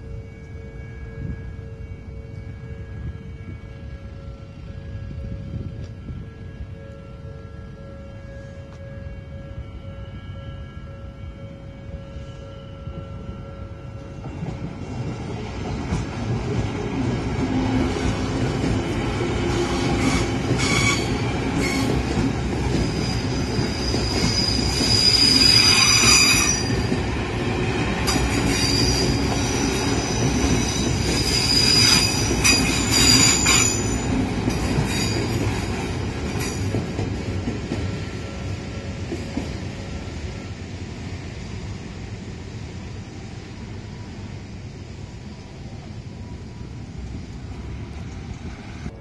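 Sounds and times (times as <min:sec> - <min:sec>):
rumble of wheels on rail: 0:00.0 - 0:49.0
train wheels squealing: 0:19.4 - 0:27.1, 0:28.0 - 0:39.6.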